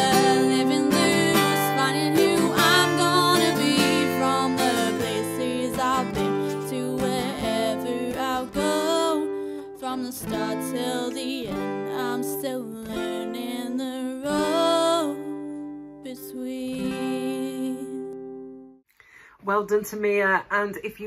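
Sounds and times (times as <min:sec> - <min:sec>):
woman singing slow melody: 0:00.0 - 0:18.2
acoustic guitar: 0:00.0 - 0:18.9.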